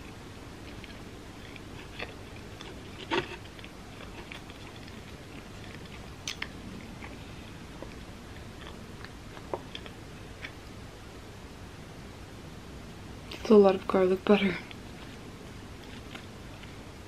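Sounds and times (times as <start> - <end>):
chewing crunchy crust: 0.0 - 10.7, 14.6 - 17.0.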